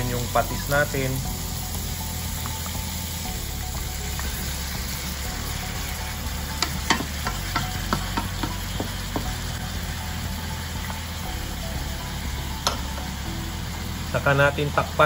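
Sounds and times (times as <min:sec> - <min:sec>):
meat and onions sizzling in oil: 0:00.0 - 0:15.0
spatula knocking against pan: 0:06.6 - 0:09.4.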